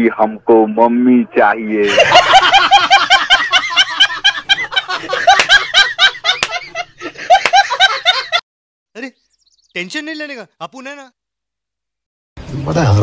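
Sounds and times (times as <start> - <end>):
person giggling: 1.8 - 8.4.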